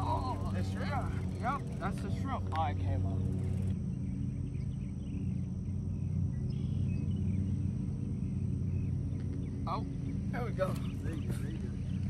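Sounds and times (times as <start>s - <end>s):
steady low hum: 0.0s - 12.0s
faint bird chirps: 3.0s - 12.0s.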